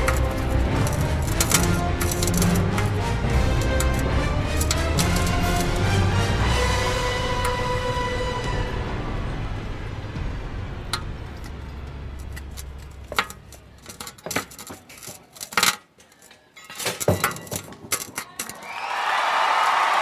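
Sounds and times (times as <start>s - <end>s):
metallic clinks and clanks: 0.0s - 6.0s, 11.0s - 18.6s
crowd cheering: 0.0s - 10.9s, 18.3s - 20.0s
low music drone: 0.0s - 13.9s.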